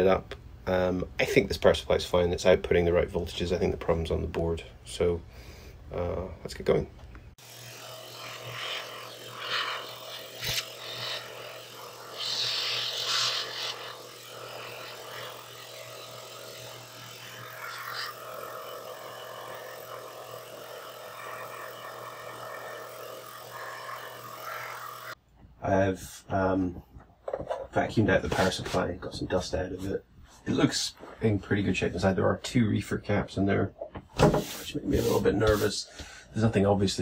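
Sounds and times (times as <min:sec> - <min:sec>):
airflow hiss: 0:07.4 - 0:15.9
handheld vacuum cleaner running: 0:07.4 - 0:25.2.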